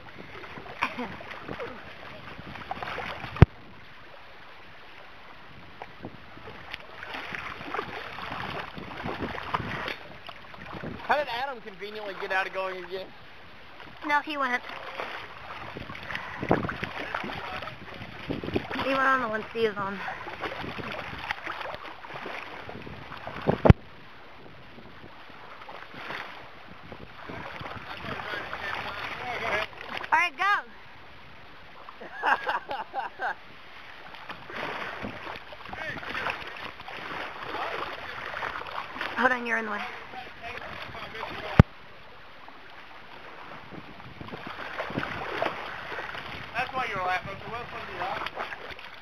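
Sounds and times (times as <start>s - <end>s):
water noise: 0.0s - 49.0s
wind: 0.0s - 49.0s.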